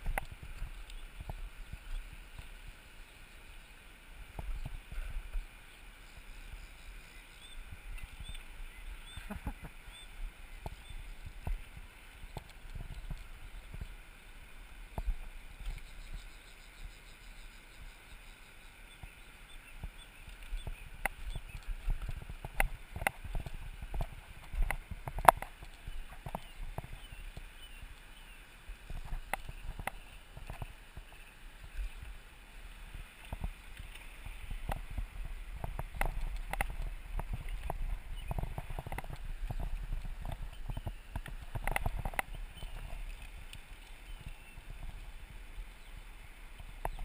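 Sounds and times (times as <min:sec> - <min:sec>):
wind noise on microphone: 0:00.0 - 0:02.8, 0:06.2 - 0:14.0, 0:20.6 - 0:27.9, 0:28.6 - 0:32.1, 0:32.8 - 0:47.0
faint bird chirps: 0:05.4 - 0:11.2, 0:15.7 - 0:21.8, 0:42.0 - 0:43.0.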